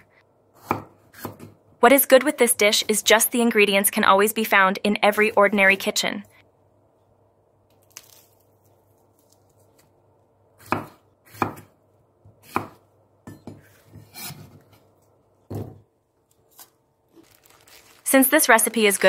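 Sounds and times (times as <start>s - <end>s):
knife chopping on wooden board: 0.6s - 1.6s, 10.6s - 11.7s, 12.3s - 14.7s
handling sounds: 16.3s - 19.0s.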